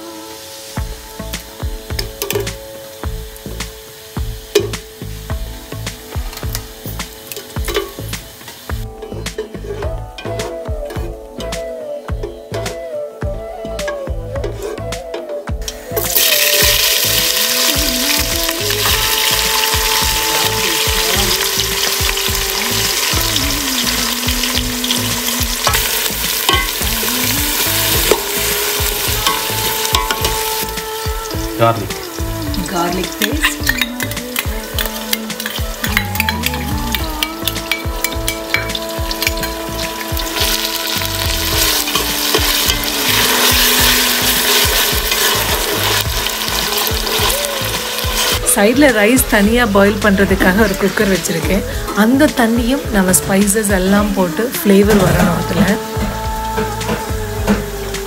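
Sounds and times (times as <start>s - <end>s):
onions sizzling in hot oil: 0.0s - 12.6s, 15.6s - 58.0s
metal spoon scraping and tapping pot: 1.9s - 2.6s, 7.3s - 8.1s, 25.6s - 26.9s, 29.2s - 30.4s, 33.2s - 39.6s.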